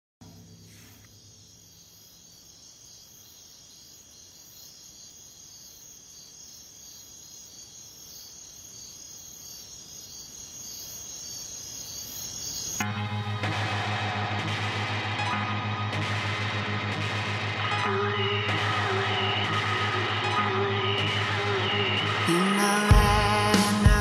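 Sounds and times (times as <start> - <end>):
crickets chirping: 0.2 - 12.9.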